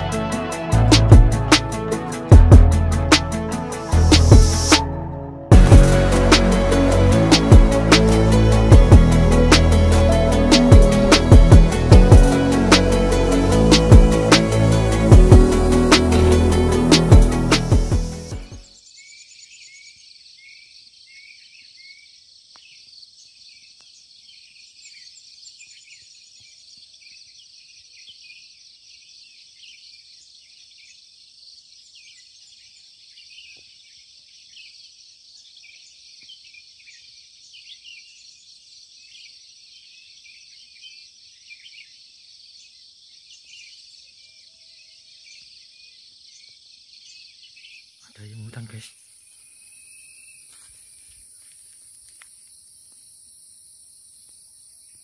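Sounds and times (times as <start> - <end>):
insect chorus shrilling: 48.0 - 55.0.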